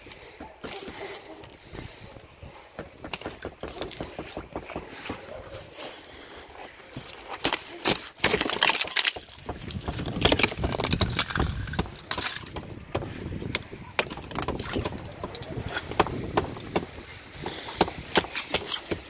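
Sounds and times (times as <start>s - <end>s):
ice cracking and snapping: 6.9s - 19.0s.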